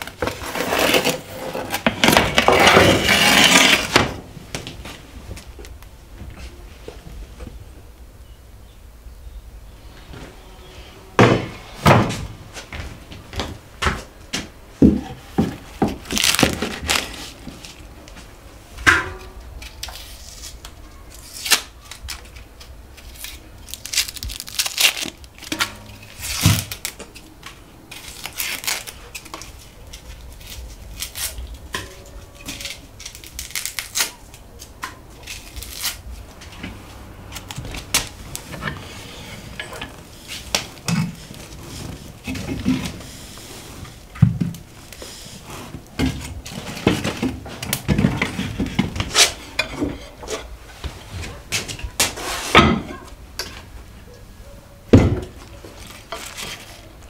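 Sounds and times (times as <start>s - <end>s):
onion peeling crinkling and taps: 12.7s - 18.3s.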